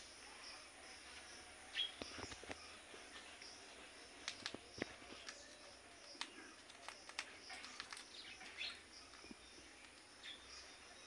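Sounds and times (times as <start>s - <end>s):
parakeet beak crunching sprig: 4.2s - 10.1s.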